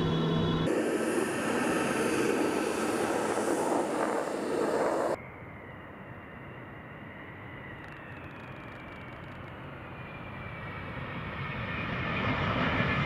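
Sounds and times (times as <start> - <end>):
faint high whine: 0.0 - 10.4
distant jet noise: 0.0 - 13.0
jet engines roaring overhead: 0.0 - 13.0.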